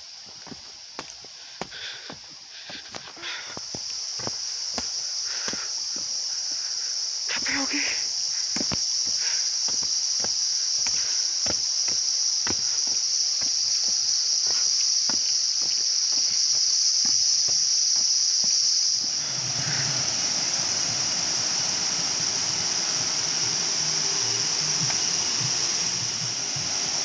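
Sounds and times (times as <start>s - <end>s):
footsteps on dirt path: 0.0s - 19.3s
cicadas droning: 0.0s - 27.0s
broad rushing noise: 18.2s - 27.0s.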